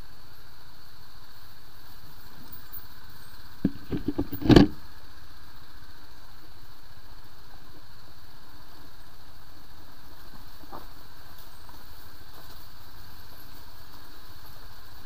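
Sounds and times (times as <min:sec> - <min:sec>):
motorcycle jolting over rocks: 0:03.6 - 0:04.8.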